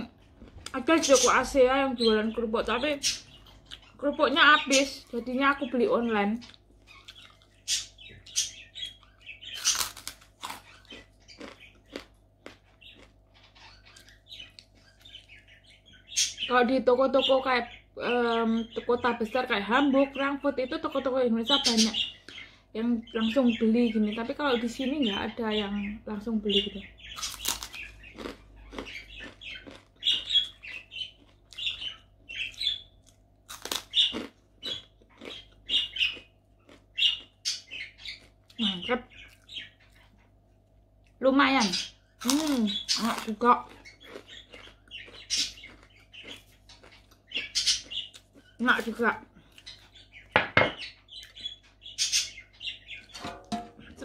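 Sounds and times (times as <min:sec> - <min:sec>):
crackers crunching while chewed: 0:06.4 - 0:07.9, 0:08.9 - 0:15.1, 0:27.2 - 0:31.9, 0:32.5 - 0:38.6, 0:42.2 - 0:48.6.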